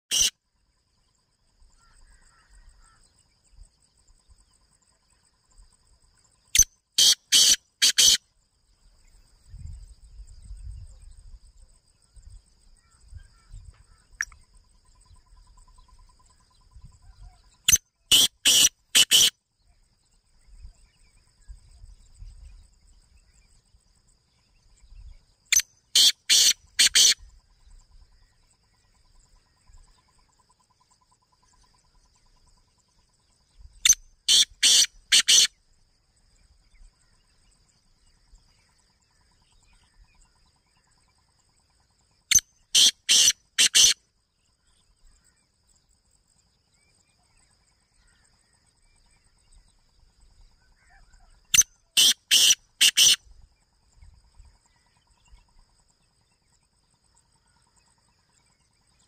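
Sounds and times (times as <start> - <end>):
bird harsh high calls: 0.0 - 0.3, 6.6 - 8.2, 17.7 - 19.3, 25.5 - 27.2, 33.8 - 35.5, 42.3 - 44.0, 50.9 - 53.2
high insect-like trill: 0.1 - 0.4.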